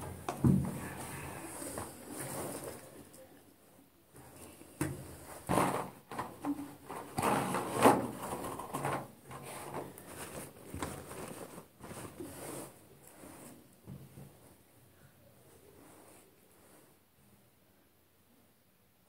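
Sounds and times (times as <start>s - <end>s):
plastic pots clicking and knocking: 0.0s - 0.9s
plastic bag rustling: 5.3s - 13.6s.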